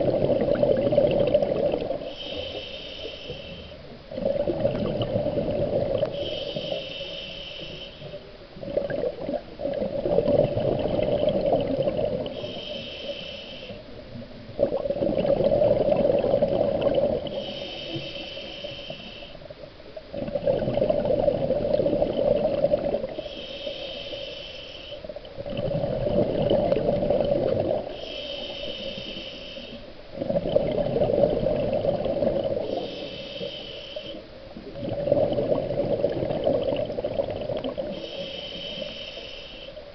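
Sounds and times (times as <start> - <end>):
exhaled bubbles rushing: 0.0 - 2.0, 4.1 - 6.1, 8.6 - 12.3, 14.6 - 17.4, 20.1 - 23.2, 25.4 - 27.9, 30.2 - 32.8, 34.6 - 38.0
regulator hiss on inhale: 1.4 - 4.0, 4.8 - 8.3, 12.2 - 14.2, 17.2 - 19.7, 22.1 - 25.2, 27.2 - 30.2, 32.4 - 34.6, 37.7 - 39.9.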